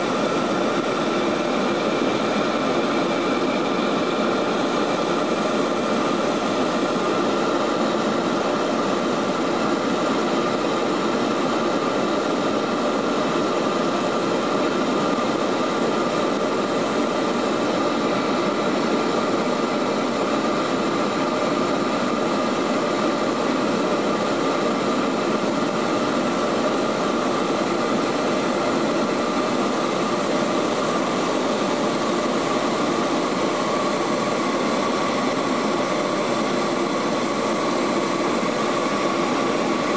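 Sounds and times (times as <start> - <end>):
turboprop engines droning: 0.0 - 39.9.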